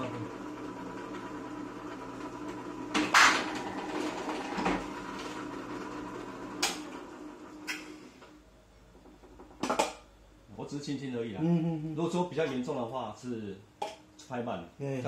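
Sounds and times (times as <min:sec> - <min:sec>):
seaming machine humming: 0:00.0 - 0:08.3.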